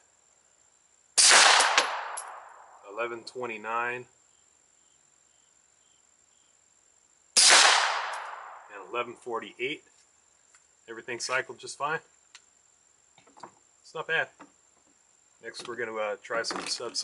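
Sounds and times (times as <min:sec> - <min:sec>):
suppressed pistol shots: 0:01.2 - 0:02.7, 0:07.4 - 0:08.7.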